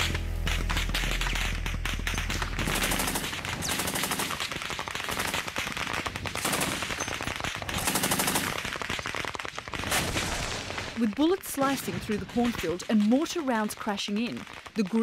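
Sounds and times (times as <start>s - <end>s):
machine gun firing bursts: 0.5s - 11.0s.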